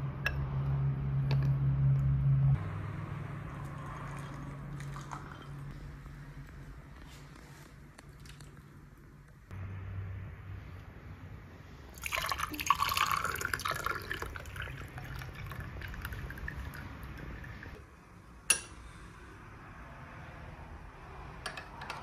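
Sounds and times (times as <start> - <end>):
tea pouring into glasses: 3.5 - 5.7, 11.9 - 17.8.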